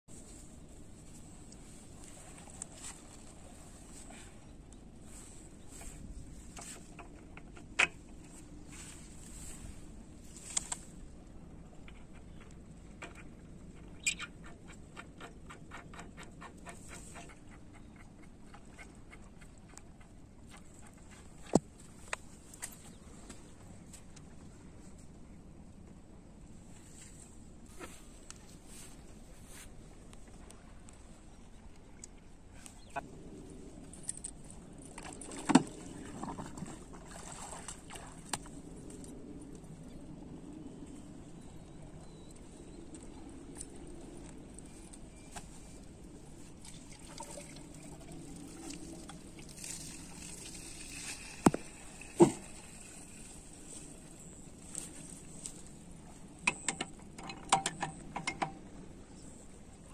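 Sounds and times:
water splashing and sloshing: 30.0s - 40.4s, 42.9s - 58.8s.

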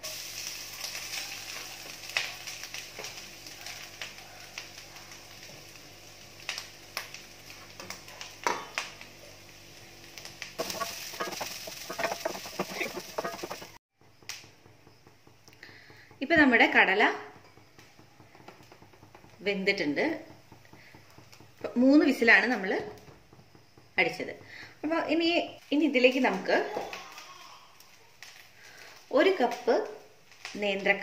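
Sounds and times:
oil sizzling: 0.0s - 31.0s
sharp pops: 10.3s - 16.3s
wooden spatula scraping pan: 10.6s - 13.8s.

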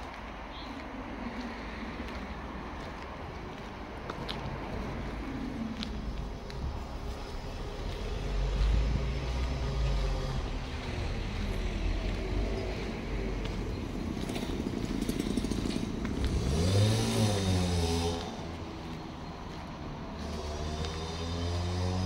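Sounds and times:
vehicle driving past: 6.9s - 22.0s.

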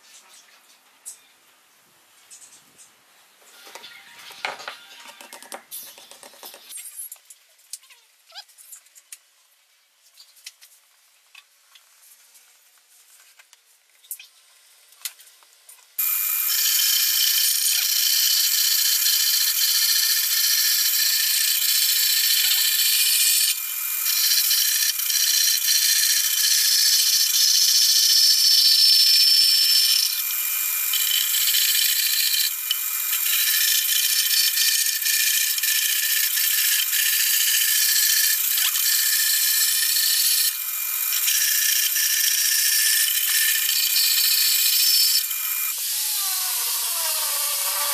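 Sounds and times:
band saw cutting wood: 38.3s - 47.9s.

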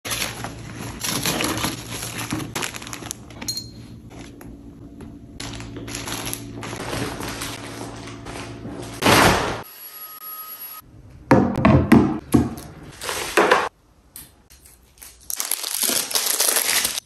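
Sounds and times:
packaging crinkling: 0.1s - 3.4s, 5.4s - 8.6s, 14.6s - 17.0s
plastic bag rustling: 0.1s - 3.4s, 5.4s - 9.1s.

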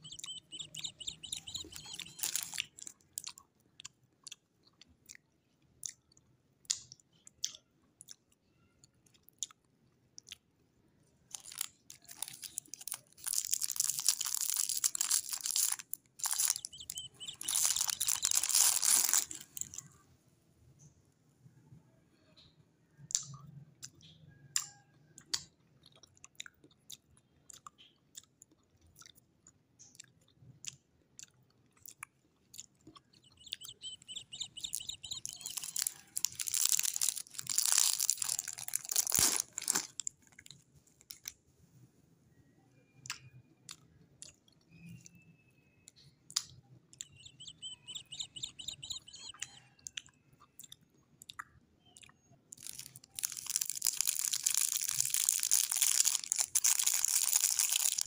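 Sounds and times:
cellophane wrapper crinkling: 0.0s - 2.9s, 11.3s - 19.8s, 33.2s - 40.5s, 52.6s - 58.0s.

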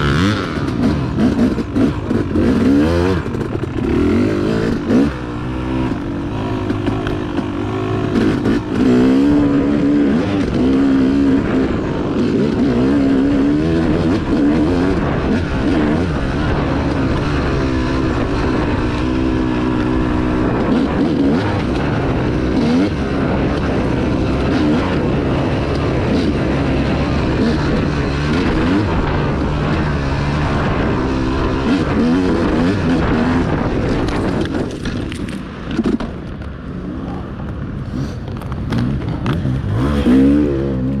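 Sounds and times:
dirt bike engine revving: 0.0s - 36.0s, 37.8s - 41.0s.

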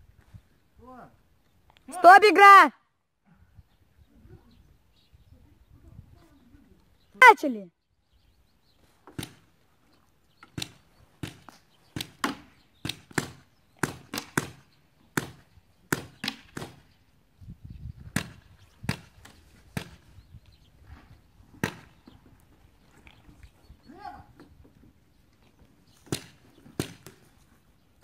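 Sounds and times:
paintball markers firing: 10.5s - 14.6s.

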